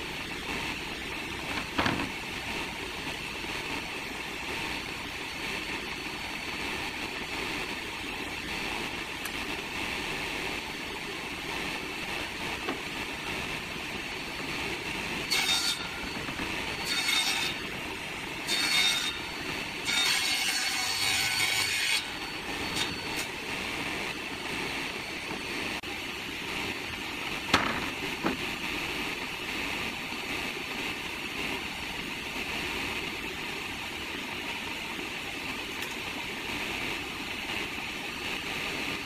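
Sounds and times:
table saw cutting wood: 11.8s - 25.8s.

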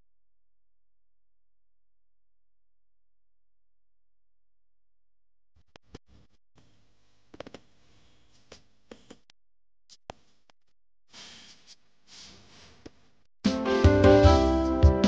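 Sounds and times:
background piano music: 13.5s - 15.0s.

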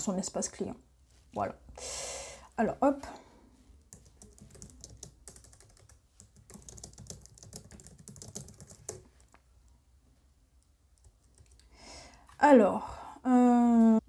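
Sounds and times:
keyboard typing: 3.8s - 9.4s, 10.9s - 11.7s.

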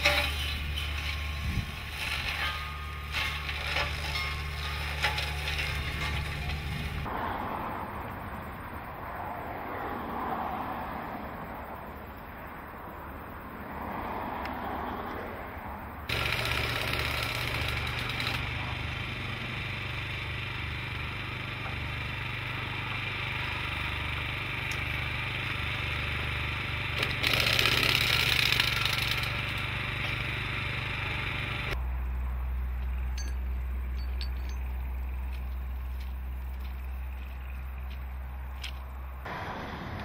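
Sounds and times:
wind rumble on microphone: 1.3s - 1.9s
small engine running: 16.1s - 31.8s.

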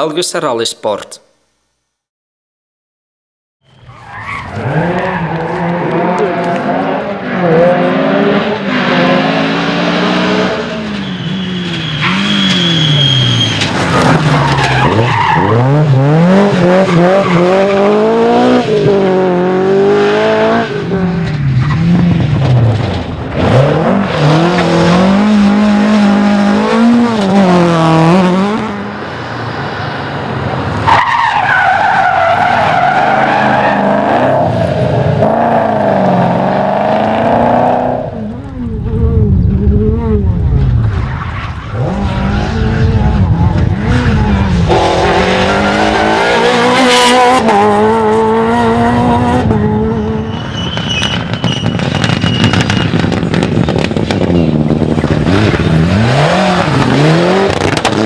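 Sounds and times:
rally car engines revving: 4.0s - 58.0s.

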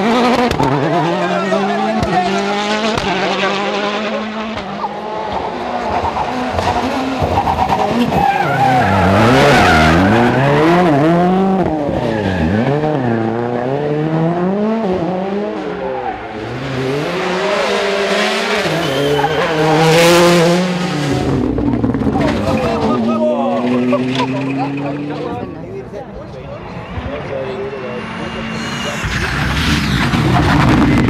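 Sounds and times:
rally car engines revving: 0.0s - 31.0s
tyres skidding: 0.0s - 31.0s.

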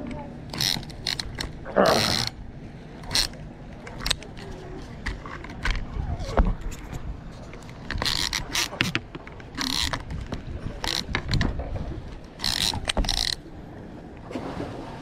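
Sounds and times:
fishing reel gear cranking: 0.5s - 2.4s, 3.0s - 5.8s, 7.6s - 10.1s, 10.8s - 11.5s, 12.3s - 13.4s.

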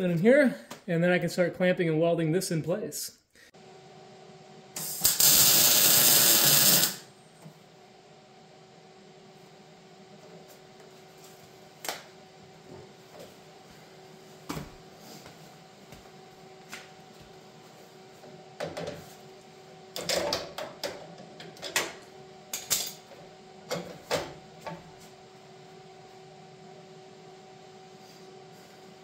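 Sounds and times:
welder bursts: 4.8s - 7.1s.

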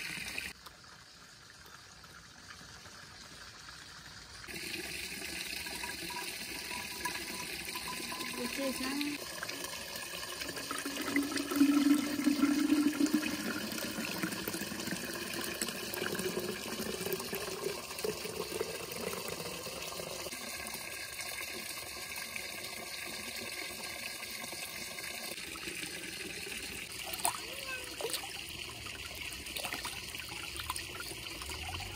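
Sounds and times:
liquid gurgling into bottle: 10.4s - 20.3s.

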